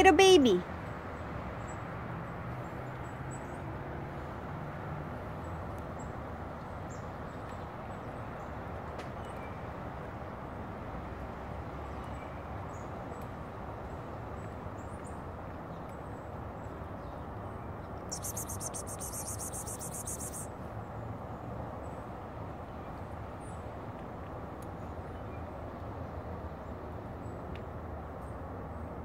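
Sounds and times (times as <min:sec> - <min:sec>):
outdoor background noise: 0:00.0 - 0:29.0
faint high bird chirps: 0:18.1 - 0:20.5
rapid high-pitched crackling: 0:18.1 - 0:20.5.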